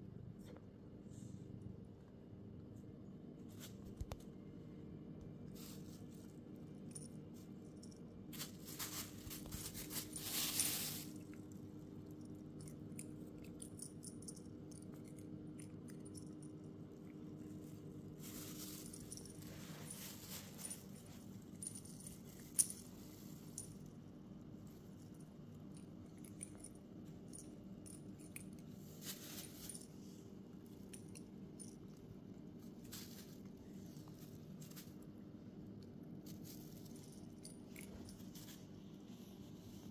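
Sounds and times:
steady low hum: 0.0 - 39.9
cat rustling a sheet: 5.5 - 6.3, 8.3 - 11.3, 18.0 - 21.4, 28.8 - 30.2, 32.6 - 35.0
cat collar pendant tinkling: 12.2 - 17.0.

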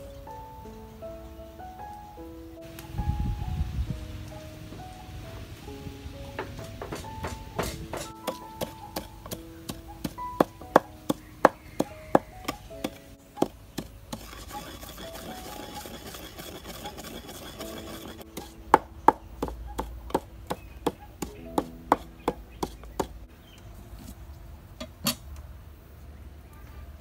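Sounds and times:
wooden pestle pounding in clay mortar: 6.4 - 23.1.

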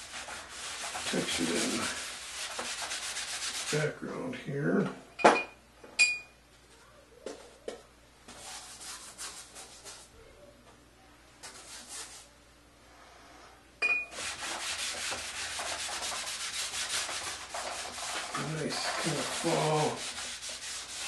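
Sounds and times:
paintbrush scrubbing on canvas: 0.0 - 3.9, 8.3 - 10.1, 11.4 - 12.3, 14.1 - 21.0.

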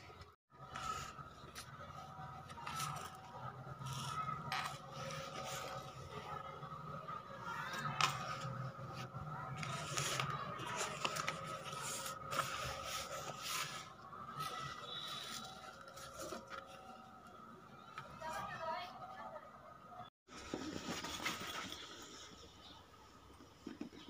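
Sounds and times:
fabric rustling and scraping: 0.6 - 17.2.

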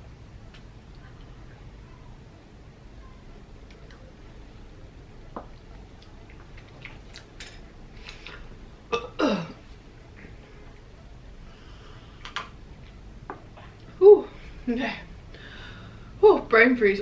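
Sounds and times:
mouth clicks and smacks: 6.0 - 8.4, 12.2 - 12.6.

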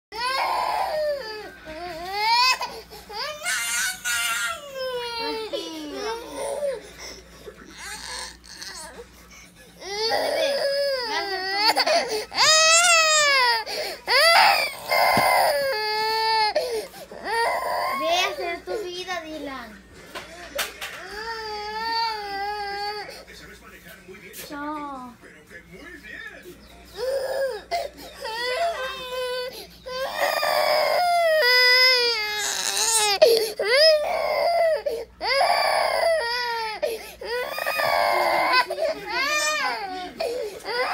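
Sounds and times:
toddler crying: 0.2 - 6.9, 7.7 - 9.0, 9.8 - 18.8, 21.0 - 23.1, 27.0 - 40.9.

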